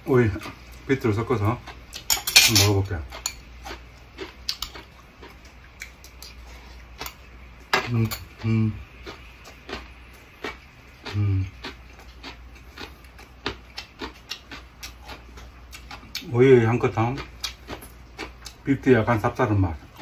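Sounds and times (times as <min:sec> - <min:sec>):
chewing clicks: 0:03.1 - 0:06.4, 0:09.0 - 0:16.3
person humming mm: 0:11.1 - 0:11.5.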